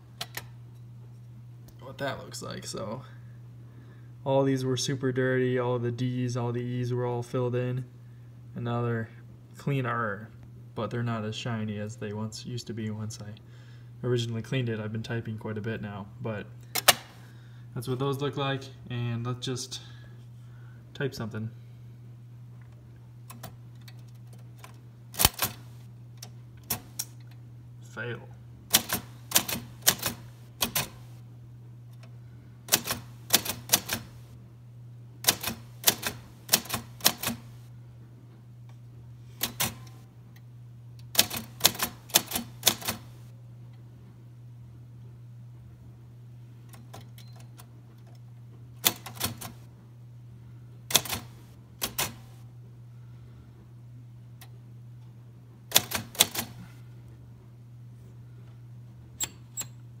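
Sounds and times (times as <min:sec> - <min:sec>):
typewriter key strikes: 0:25.2 - 0:25.7, 0:28.7 - 0:31.1, 0:32.7 - 0:34.2, 0:35.3 - 0:37.5, 0:39.4 - 0:40.0, 0:41.2 - 0:43.1, 0:48.8 - 0:49.6, 0:50.9 - 0:52.3, 0:55.7 - 0:56.6.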